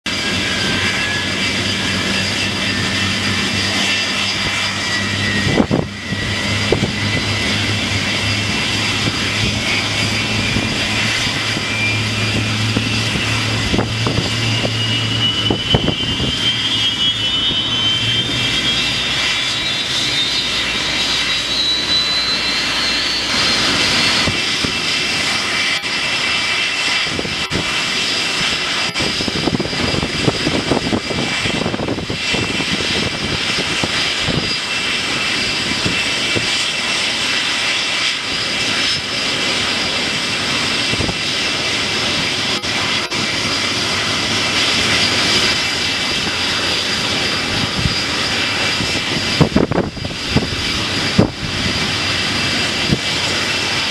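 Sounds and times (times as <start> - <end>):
jet engine whine rising: 0.0 - 53.9
low hum: 0.1 - 34.3.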